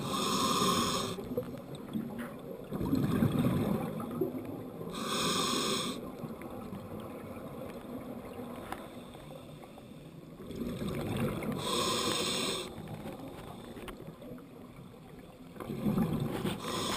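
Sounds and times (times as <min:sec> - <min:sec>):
exhaled bubbles burst: 0:02.7 - 0:04.4.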